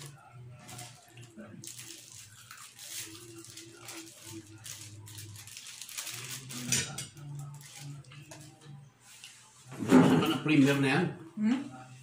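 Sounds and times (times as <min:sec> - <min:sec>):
utensils and dishes clinking: 0:00.0 - 0:08.8
plastic glove crinkling: 0:00.0 - 0:09.5.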